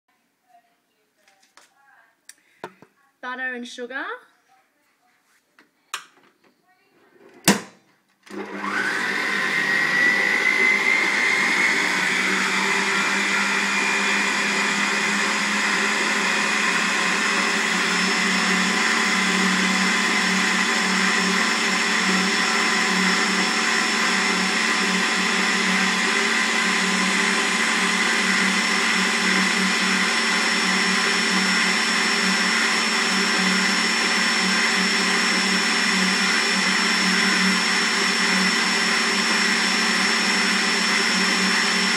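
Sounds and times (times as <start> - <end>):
stand mixer motor whining: 8.3 - 41.9.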